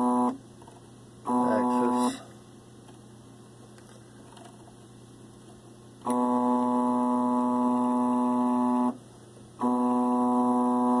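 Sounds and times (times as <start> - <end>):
stepper motor humming: 1.3 - 2.3, 6.0 - 9.0, 9.6 - 11.0.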